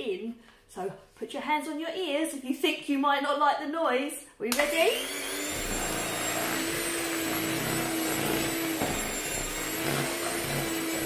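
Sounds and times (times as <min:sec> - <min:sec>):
electric mixer motor hum: 0:04.6 - 0:11.0.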